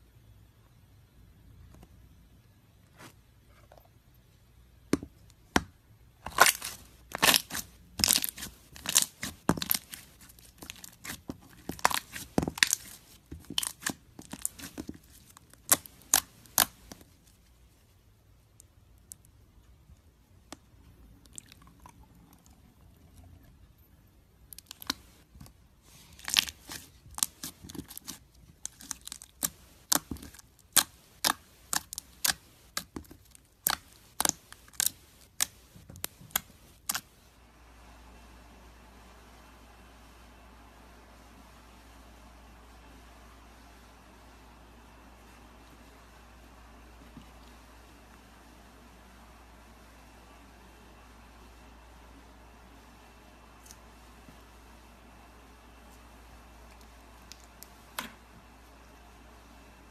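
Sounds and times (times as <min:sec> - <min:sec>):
slime crackling and popping: 0:06.2 - 0:17.1, 0:24.5 - 0:25.1, 0:26.1 - 0:37.1.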